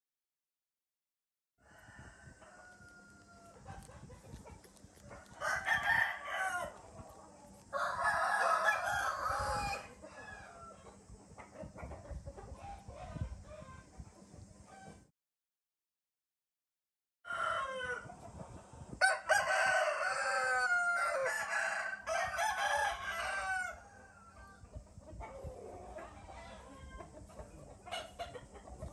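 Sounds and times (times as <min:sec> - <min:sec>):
rooster crowing: 0:01.6 - 0:03.9, 0:05.1 - 0:06.8, 0:07.7 - 0:10.9, 0:17.3 - 0:18.1, 0:19.0 - 0:24.6.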